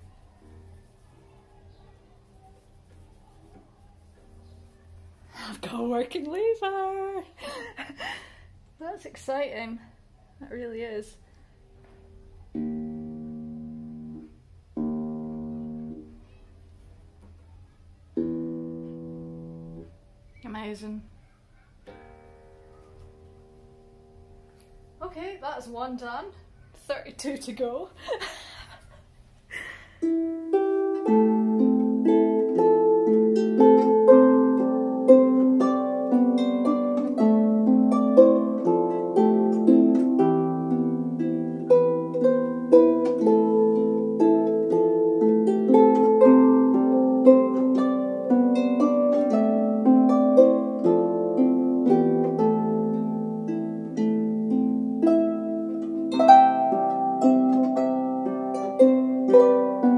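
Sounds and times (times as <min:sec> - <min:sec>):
harp music: 0:12.5 - 0:16.2, 0:18.1 - 0:20.0, 0:21.9 - 0:24.9, 0:30.0 - 0:59.9.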